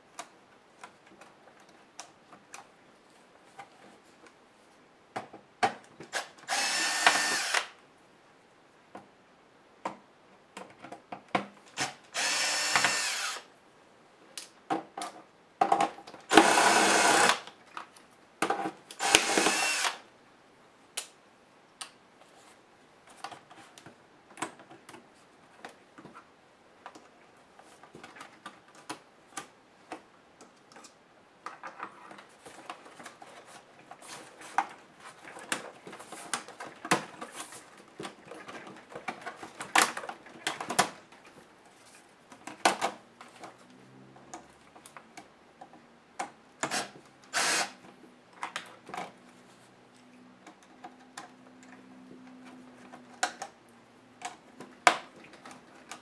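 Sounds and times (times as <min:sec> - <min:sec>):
power screwdriver whirring: 0:06.5 - 0:07.7, 0:11.8 - 0:13.5, 0:16.3 - 0:17.4, 0:19.0 - 0:20.0, 0:46.7 - 0:47.8.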